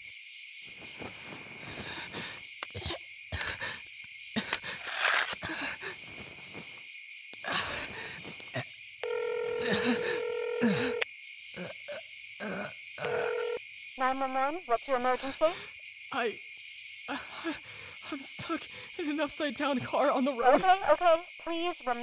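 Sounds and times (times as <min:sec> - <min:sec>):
crickets chirping: 0:00.0 - 0:22.0
telephone ringback tone: 0:09.0 - 0:11.0, 0:13.0 - 0:13.6.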